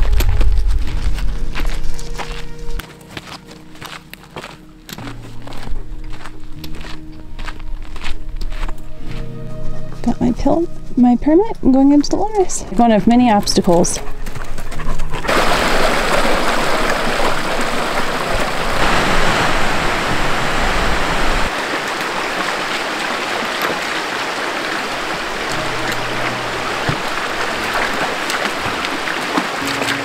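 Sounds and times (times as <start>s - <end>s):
low rumble: 0.0s - 2.8s, 18.5s - 21.5s
creek water running over rocks: 15.3s - 30.0s.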